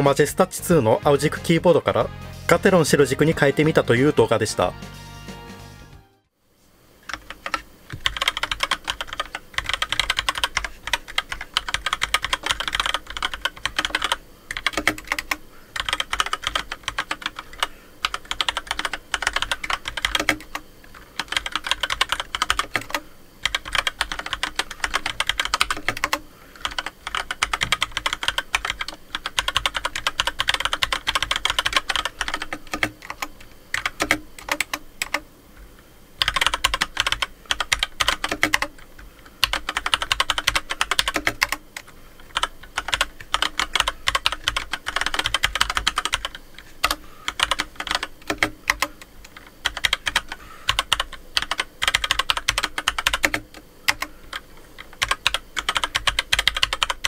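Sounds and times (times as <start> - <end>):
mechanical keyboard typing: 7.0 - 35.2, 36.2 - 57.0.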